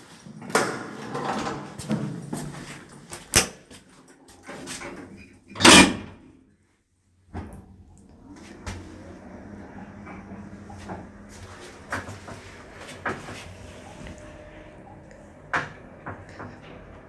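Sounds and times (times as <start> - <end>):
door banging shut: 5.6 - 6.2.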